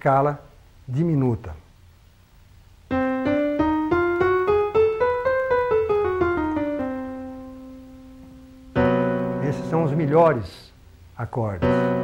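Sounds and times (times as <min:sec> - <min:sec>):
piano playing a scale: 0:02.9 - 0:10.6, 0:11.6 - 0:12.0.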